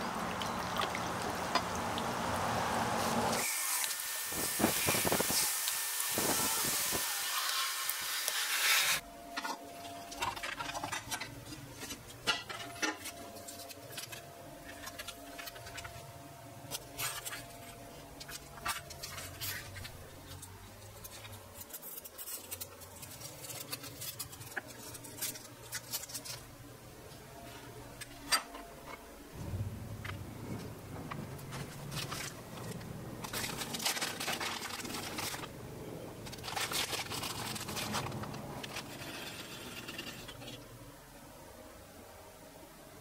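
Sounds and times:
hands handling plastic film: 9.4s - 16.0s, 16.6s - 26.5s, 31.1s - 35.6s, 36.2s - 40.6s.

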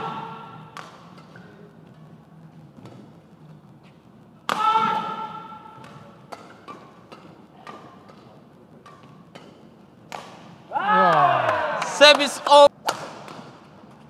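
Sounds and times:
racket hitting shuttlecock: 0.7s - 1.4s, 4.5s - 14.0s.

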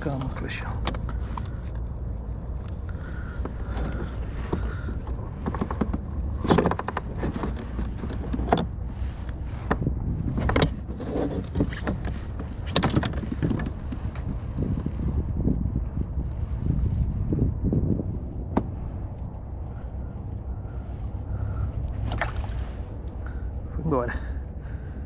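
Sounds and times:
wind rumble on microphone: 0.0s - 25.0s
water splashing: 20.7s - 23.4s.

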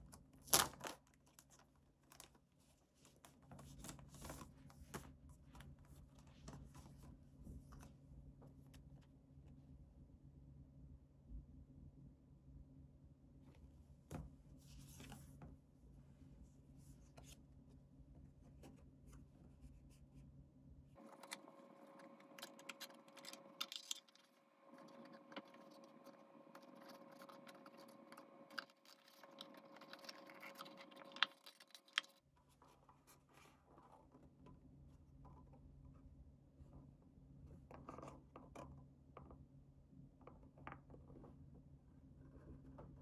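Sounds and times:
paper card crinkling and scraping: 21.0s - 34.1s.

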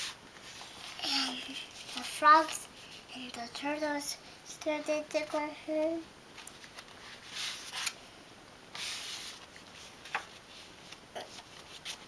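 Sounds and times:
paper pages rustling: 0.0s - 3.0s, 6.4s - 8.0s, 8.7s - 12.0s.

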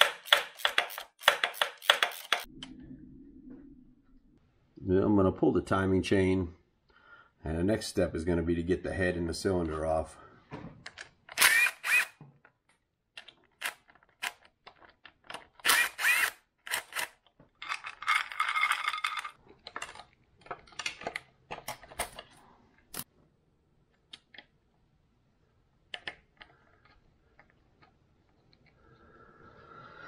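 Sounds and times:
cordless drill motor whine: 11.4s - 12.1s, 15.7s - 16.4s.

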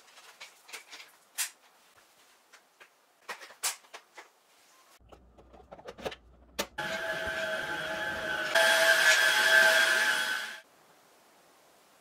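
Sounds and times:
vacuum motor whining: 6.8s - 10.6s.

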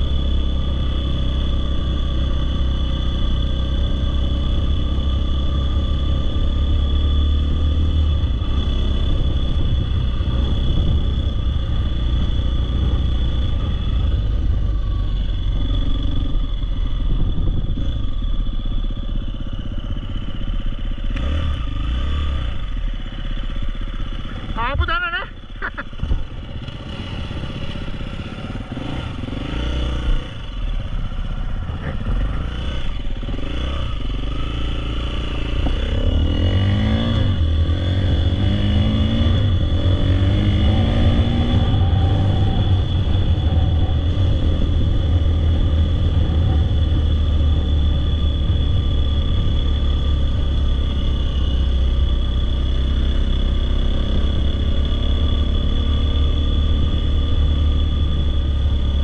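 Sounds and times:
dirt bike engine revving: 24.2s - 49.5s.

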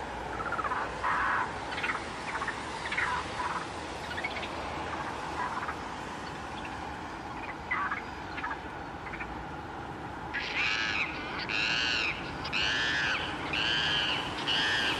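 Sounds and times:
steady background noise: 0.0s - 14.9s
harsh animal calls: 10.3s - 14.9s.

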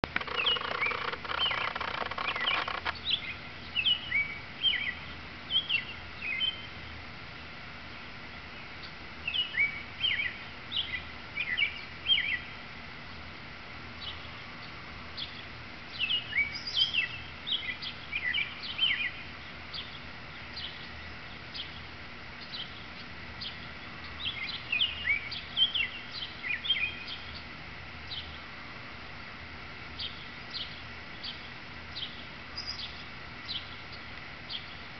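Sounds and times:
robin singing whistled phrases: 16.0s - 19.9s.

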